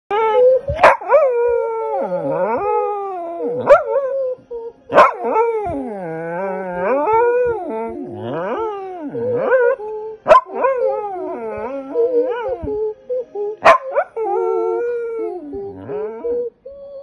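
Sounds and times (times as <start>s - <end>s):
dog howling: 0.1s - 17.0s
dog yipping: 0.7s - 1.2s, 4.9s - 5.8s, 10.2s - 10.8s, 13.6s - 14.2s.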